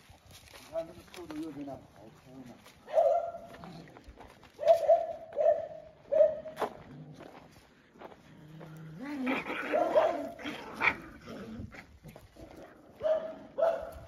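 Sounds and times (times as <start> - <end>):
dog barking: 2.8 - 3.6, 4.6 - 6.5, 9.6 - 10.4, 13.0 - 14.0
dogs growling and yipping: 8.3 - 13.6.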